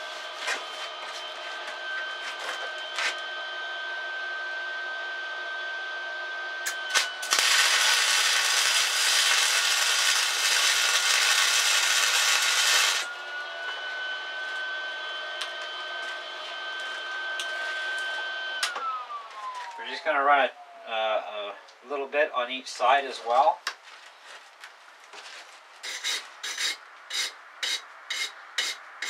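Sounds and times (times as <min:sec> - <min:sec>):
steady high whine: 0:00.0 - 0:23.6
welding arc sizzling: 0:06.6 - 0:13.1, 0:25.8 - 0:28.8.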